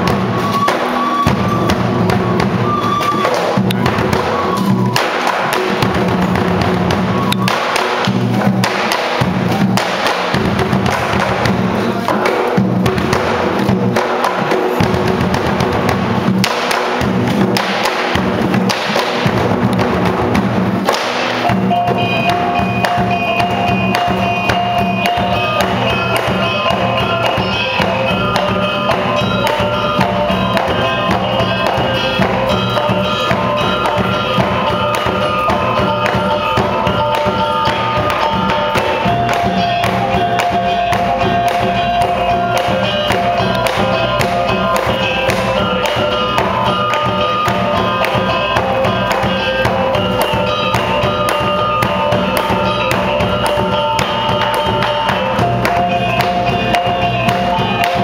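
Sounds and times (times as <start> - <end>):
steady percussion: 0.0 - 58.0
held shifting melody: 21.4 - 58.0.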